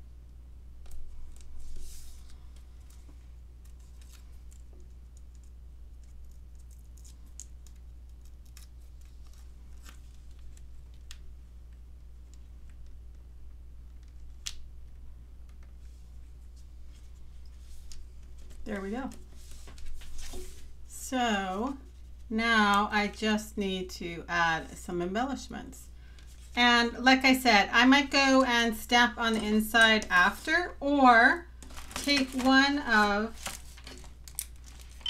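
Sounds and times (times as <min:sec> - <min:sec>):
low steady hum: 0:00.0 - 0:35.0
cardstock rustling: 0:28.2 - 0:30.8, 0:31.6 - 0:35.0.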